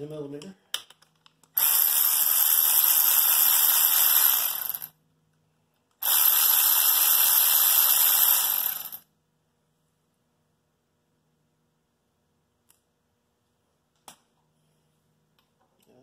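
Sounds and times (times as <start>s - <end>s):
power tool running: 1.6s - 4.9s, 6.0s - 9.0s.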